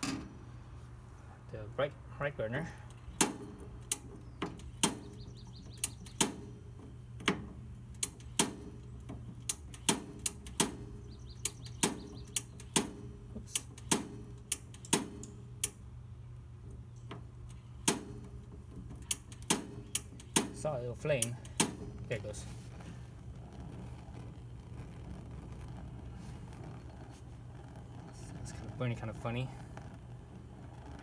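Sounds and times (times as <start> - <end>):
stove spark igniter clicking: 2.9 - 15.8, 18.9 - 21.9.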